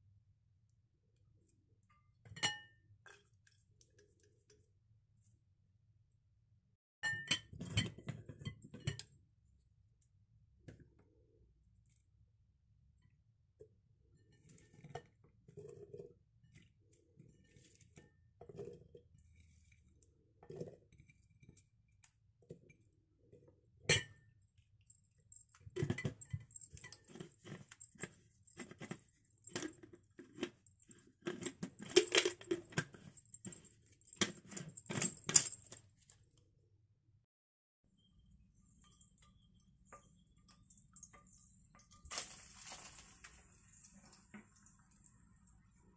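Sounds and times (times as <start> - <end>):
taps and clinks on glass jar: 7.0 - 9.1
hands rustling chilies: 42.1 - 43.7.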